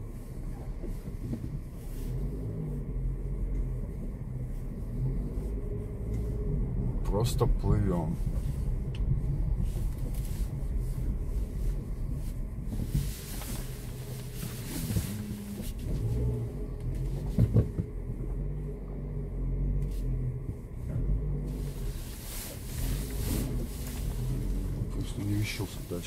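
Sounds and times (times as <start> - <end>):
engine and road rumble: 0.0 - 26.0
water washing under car: 21.5 - 26.0.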